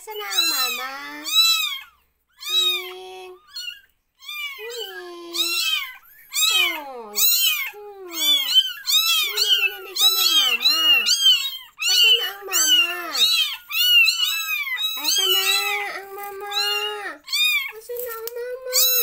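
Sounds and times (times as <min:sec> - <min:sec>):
kittens meowing: 0:00.0 - 0:19.0.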